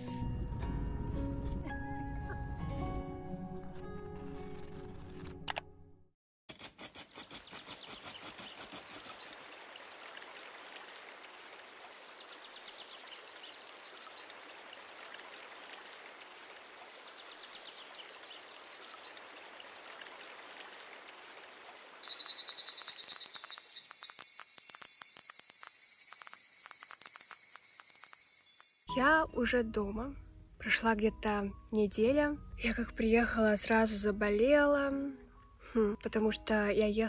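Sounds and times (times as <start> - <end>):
background music: 0.0 - 6.1, 28.9 - 37.0.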